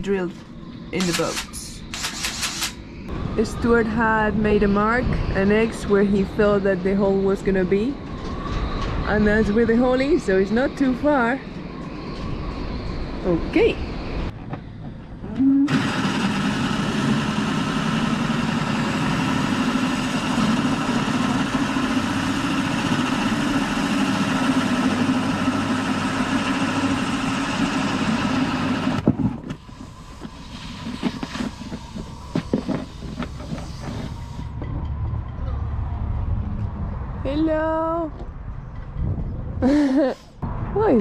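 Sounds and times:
power drill boring through fiberglass: 0:15.7 - 0:29.0.

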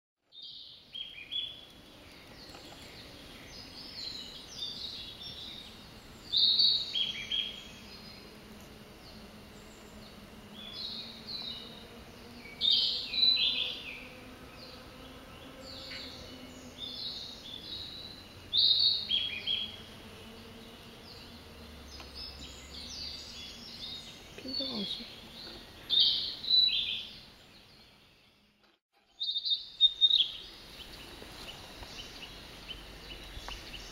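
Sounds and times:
bird singing whistled notes: 0:00.4 - 0:08.2, 0:10.6 - 0:14.2, 0:15.7 - 0:19.8, 0:21.9 - 0:28.4, 0:29.1 - 0:31.1.

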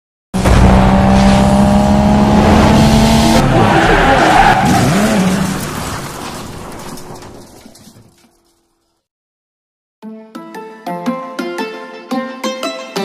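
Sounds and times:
car tyres screeching: 0:00.7 - 0:07.7.

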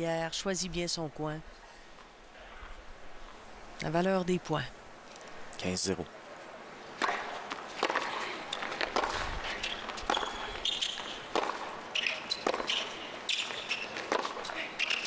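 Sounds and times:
rackets striking tennis ball: 0:07.0 - 0:15.0
tennis ball bouncing: 0:07.0 - 0:15.0.

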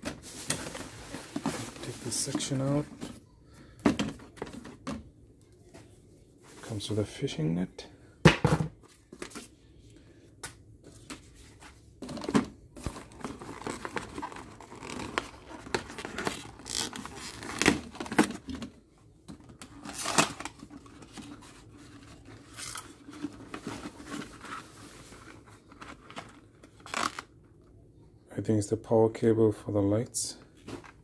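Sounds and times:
packaging rustling and crinkling: 0:00.0 - 0:03.2, 0:12.0 - 0:18.7, 0:19.3 - 0:27.3.

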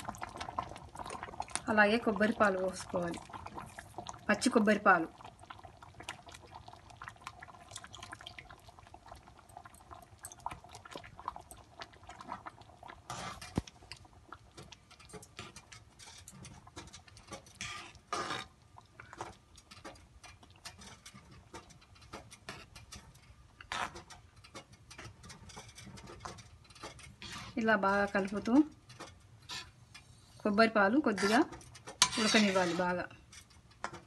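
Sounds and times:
simmering syrup crackling: 0:00.0 - 0:34.0
spoon scraping steel pan: 0:15.0 - 0:18.5, 0:20.7 - 0:30.1, 0:31.1 - 0:34.0.

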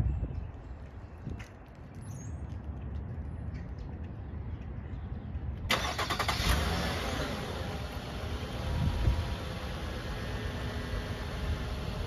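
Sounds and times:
car engine idling: 0:05.7 - 0:12.0.

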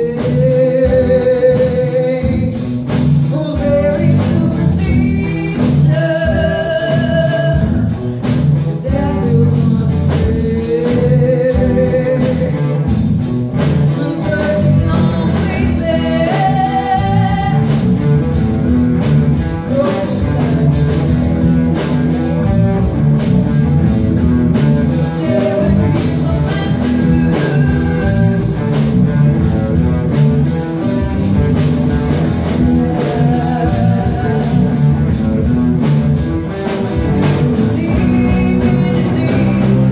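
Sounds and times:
woman singing: 0:00.0 - 0:12.9, 0:13.8 - 0:17.9, 0:19.6 - 0:21.2, 0:24.6 - 0:28.7, 0:31.2 - 0:35.3, 0:37.2 - 0:39.9
rock band playing: 0:00.0 - 0:39.9.

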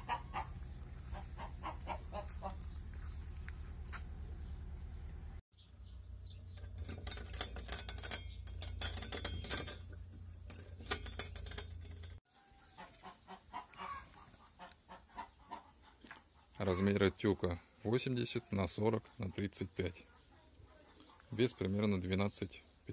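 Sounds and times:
chickens clucking: 0:00.0 - 0:02.8, 0:12.4 - 0:17.7.

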